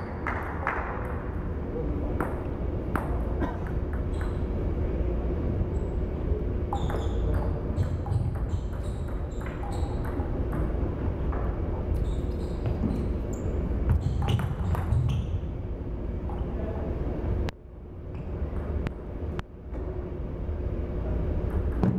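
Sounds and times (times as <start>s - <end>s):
steady low hum: 0.0s - 21.9s
table tennis ball pinging: 6.7s - 10.8s.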